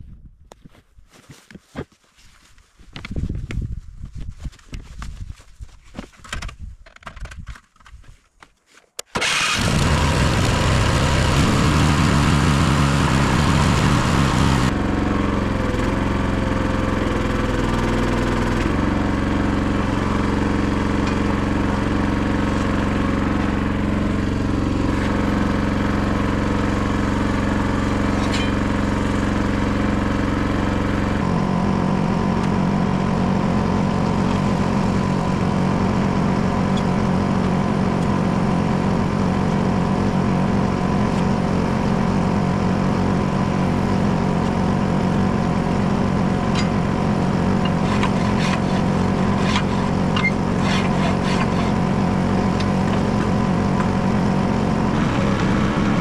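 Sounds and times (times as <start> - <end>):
clatter and knocks: 6.0 - 8.1
small engine running: 9.2 - 56.0.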